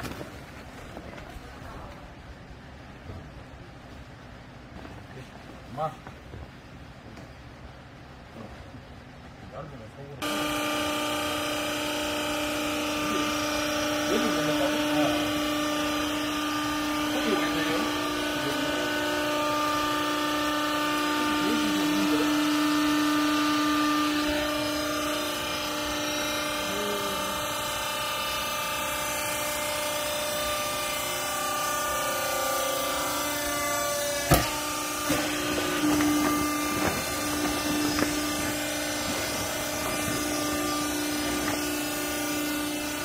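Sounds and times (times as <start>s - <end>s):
pump motor humming: 10.2s - 43.0s
sharp knocks: 34.2s - 41.7s.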